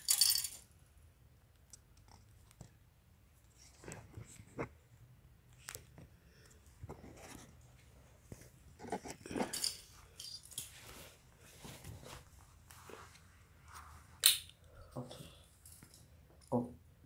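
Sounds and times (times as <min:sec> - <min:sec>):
plastic parts rustling: 0:00.0 - 0:00.6.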